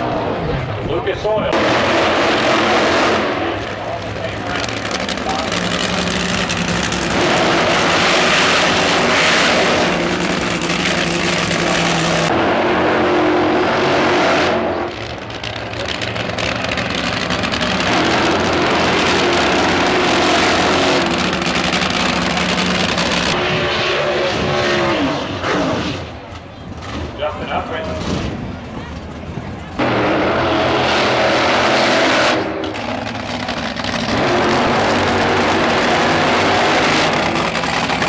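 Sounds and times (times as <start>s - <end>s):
race car engines revving high: 0.0s - 38.0s.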